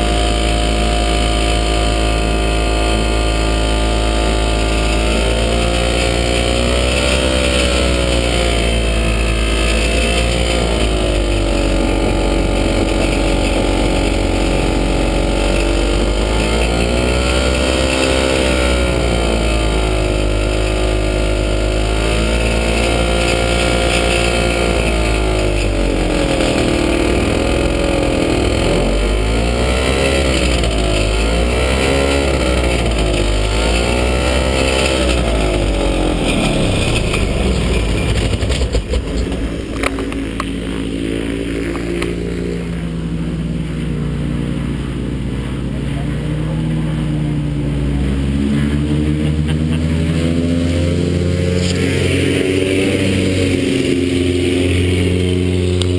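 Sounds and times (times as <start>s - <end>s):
ultralight aircraft engine running: 0.0s - 55.9s.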